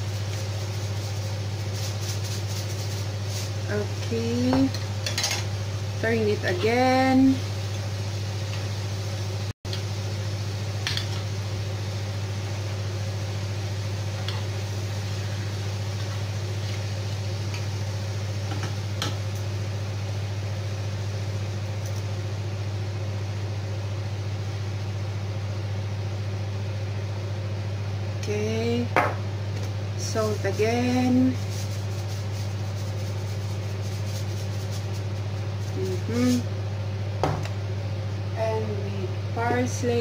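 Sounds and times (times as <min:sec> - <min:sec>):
meat sizzling in oil: 0:00.0 - 0:22.4, 0:29.3 - 0:36.4.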